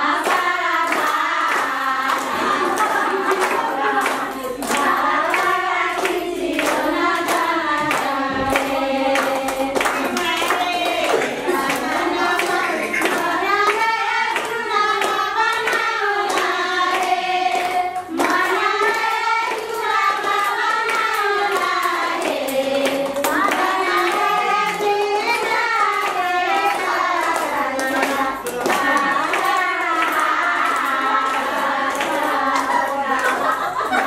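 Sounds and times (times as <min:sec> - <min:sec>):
hands clapping in rhythm: 0:00.0 - 0:34.0
person singing: 0:06.7 - 0:13.8.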